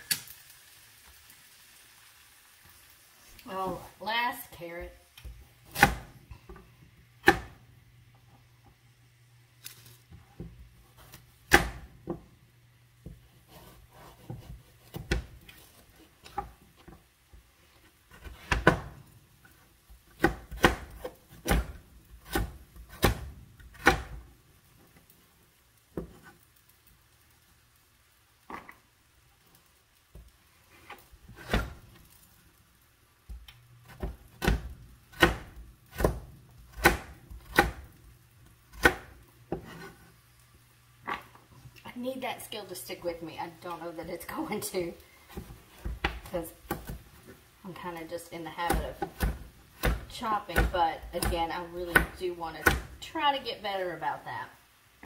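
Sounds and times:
knife chopping on cutting board: 5.7s - 6.1s, 7.2s - 7.6s, 10.4s - 12.2s, 13.0s - 15.4s, 18.1s - 19.0s, 20.2s - 24.2s, 31.3s - 31.8s, 33.9s - 37.9s, 38.7s - 40.0s, 48.6s - 53.0s.

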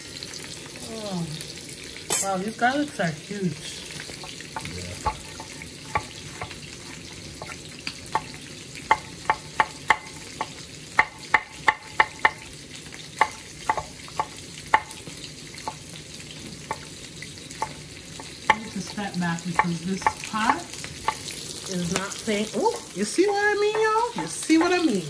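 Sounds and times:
food sizzling in a pot: 0.0s - 25.0s
knife tapping on wooden board: 7.4s - 12.4s, 13.2s - 15.0s, 23.1s - 24.9s.

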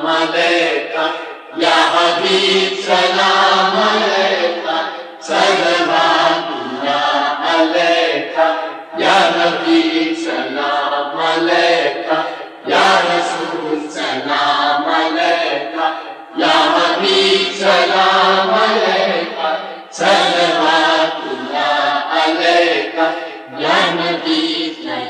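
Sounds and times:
person chanting devotional song: 0.0s - 25.0s.

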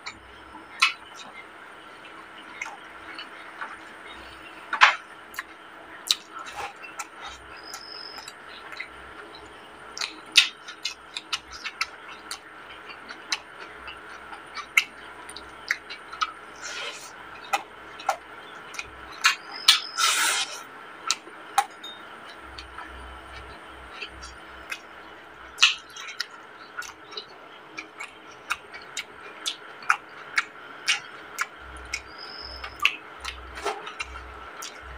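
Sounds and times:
wet mouth smacks while chewing: 25.6s - 27.2s, 32.7s - 34.8s.

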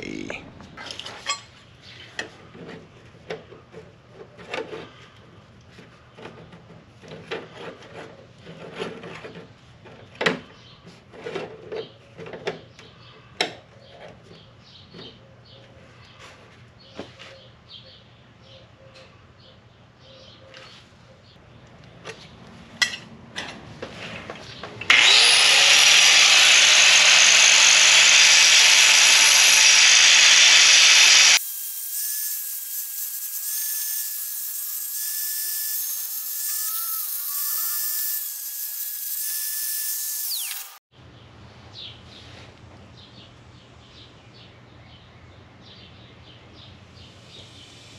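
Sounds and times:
power tool grinding steel: 24.9s - 40.8s.

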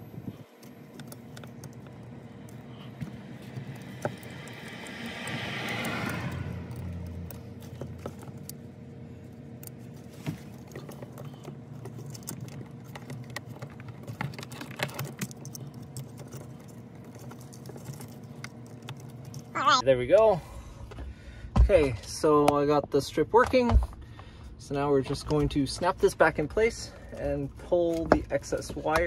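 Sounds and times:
steady low hum: 0.0s - 29.0s.

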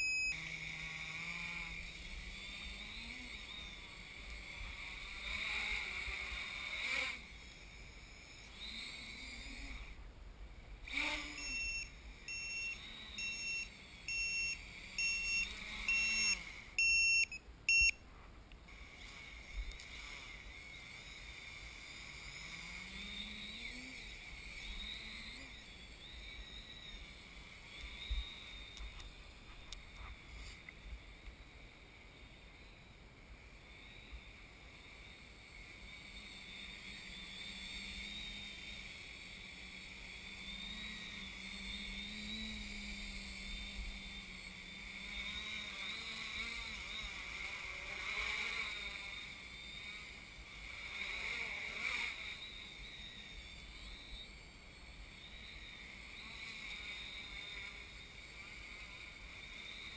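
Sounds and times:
short electronic beeps: 0.0s - 0.6s, 11.2s - 18.0s
drone propellers whirring: 0.0s - 17.9s, 18.5s - 59.9s.

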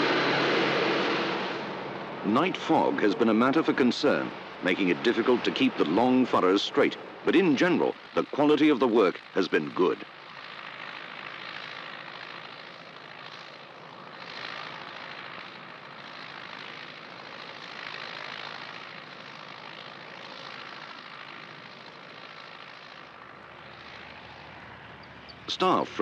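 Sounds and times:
tractor diesel engine droning: 0.0s - 12.7s.

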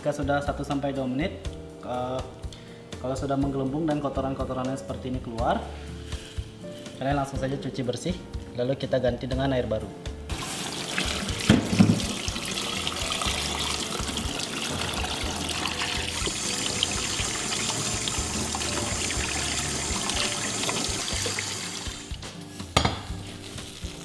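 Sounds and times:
tap running into a pot: 10.3s - 21.4s.

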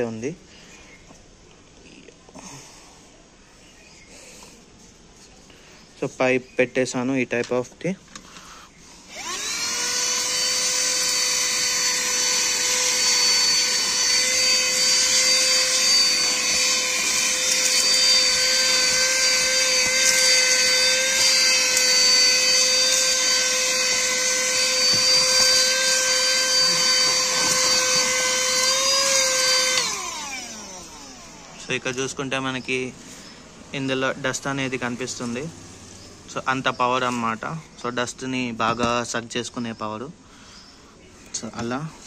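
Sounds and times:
handheld vacuum cleaner running: 9.0s - 32.1s.

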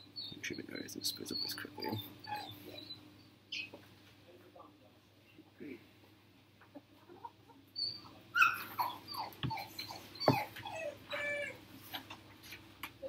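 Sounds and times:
high-pitched animal cries: 1.4s - 3.0s, 7.8s - 11.6s.

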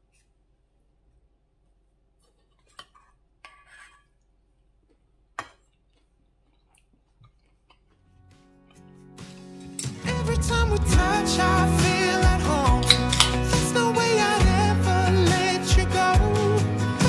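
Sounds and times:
chewing crunch: 4.8s - 8.4s
music: 8.1s - 17.0s
chopsticks clicking on steel plate: 12.8s - 13.4s.

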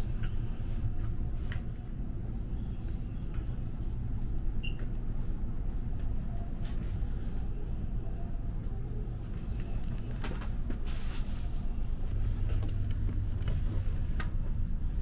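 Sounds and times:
train interior rumble: 0.0s - 15.0s.

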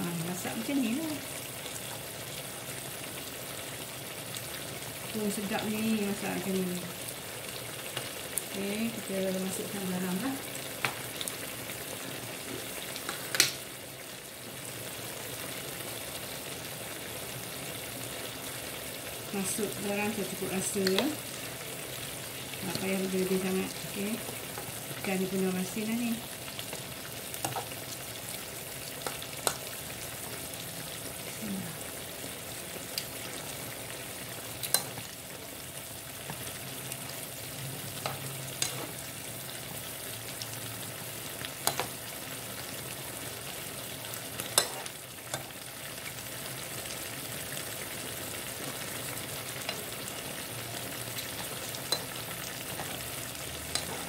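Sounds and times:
metal spoon clinking pan: 51.9s - 52.1s.

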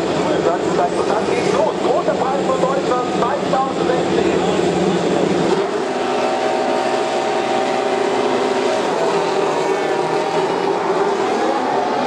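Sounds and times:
racing cars passing at high revs: 4.6s - 12.0s.

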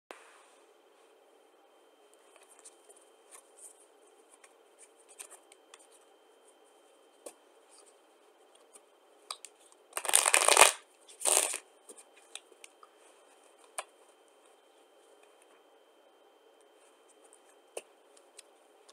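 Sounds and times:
cards riffle-shuffled: 10.0s - 11.6s.

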